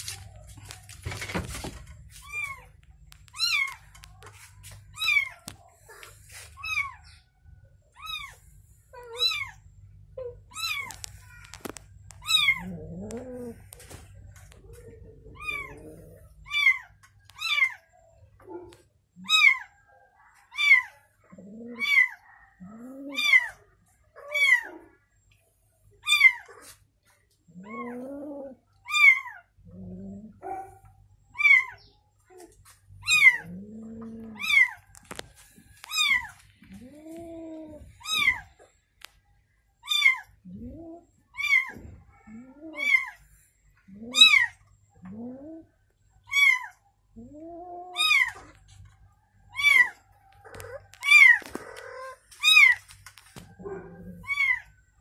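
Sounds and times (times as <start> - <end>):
kitten meowing: 3.3 - 3.8, 10.5 - 11.0, 12.1 - 13.3, 15.2 - 17.8, 33.0 - 33.6, 34.2 - 34.8, 35.8 - 38.5, 47.9 - 48.6, 49.6 - 52.8, 54.2 - 54.7
adult cat meowing: 15.2 - 17.8, 53.8 - 54.7.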